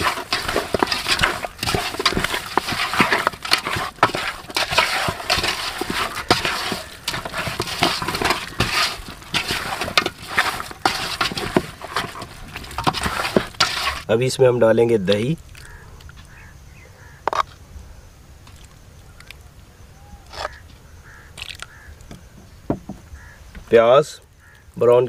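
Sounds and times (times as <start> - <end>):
wet squishing of meat mixed by hand: 0.0 - 14.1.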